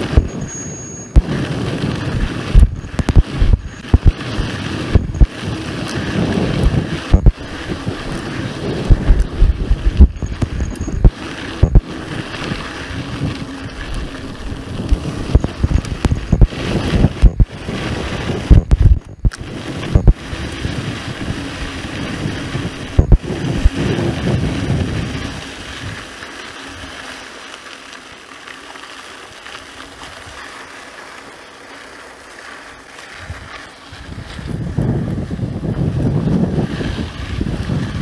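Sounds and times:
bike knocks and jolts: 0.0s - 27.0s
wind buffeting microphone: 1.1s - 26.1s, 33.2s - 38.0s.

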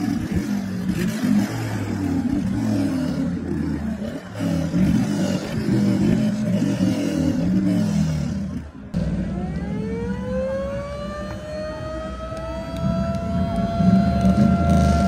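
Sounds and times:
vehicle engine rumbling: 0.0s - 15.0s
rising whine: 9.0s - 15.0s.

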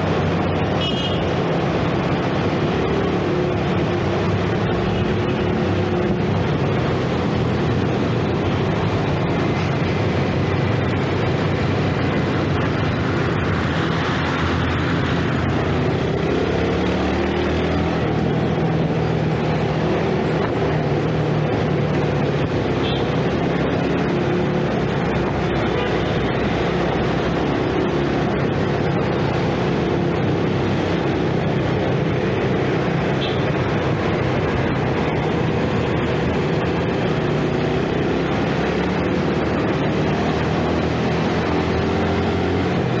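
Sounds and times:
road and wind noise: 0.0s - 43.0s.

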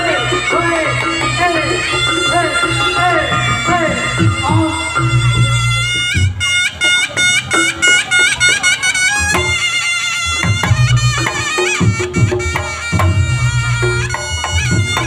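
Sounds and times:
gong beats: 0.0s - 6.5s
drum beats: 0.0s - 15.0s
shawm playing quick notes: 0.0s - 15.0s.

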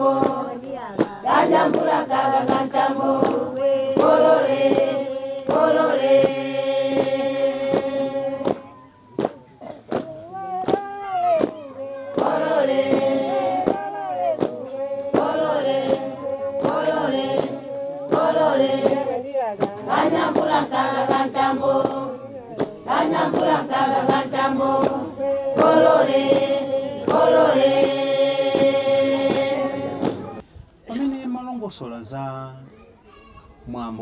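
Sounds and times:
women singing in unison: 0.0s - 9.3s, 9.9s - 30.4s.

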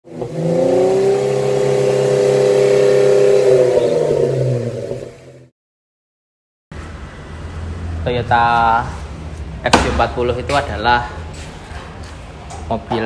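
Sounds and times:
engine revving: 0.0s - 5.5s.

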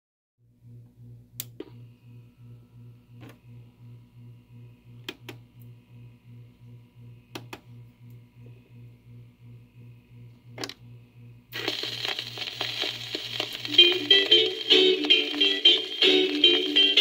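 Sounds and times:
low pulsing hum: 0.5s - 17.0s
vinyl record pops and clicks: 11.5s - 17.0s.

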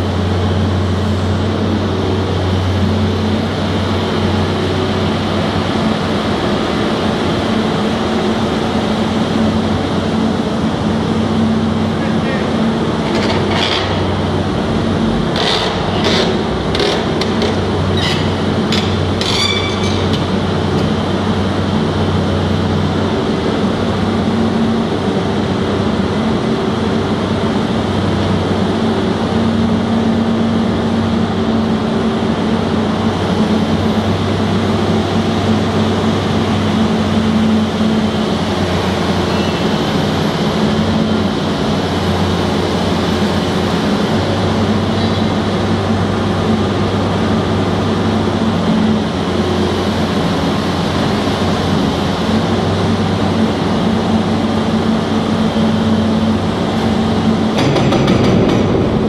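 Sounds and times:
excavator diesel engine running: 0.0s - 59.0s.

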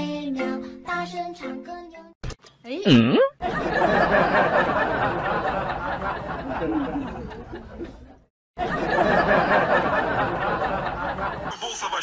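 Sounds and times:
people chuckling and chattering: 3.4s - 12.0s.

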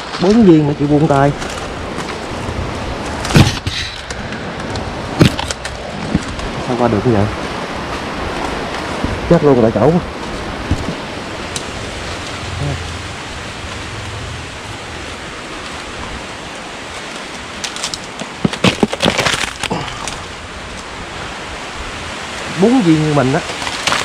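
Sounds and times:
crackles and snaps of fronds: 0.1s - 9.5s, 15.5s - 21.4s, 22.1s - 24.0s
steady hiss: 9.3s - 18.1s
dry fronds brushing: 10.0s - 21.2s.

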